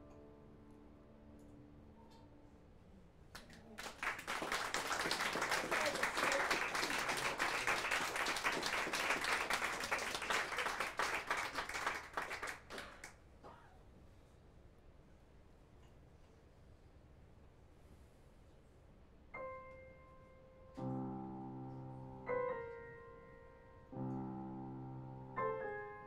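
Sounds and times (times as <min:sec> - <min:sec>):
audience applauding: 0:03.4 - 0:13.1.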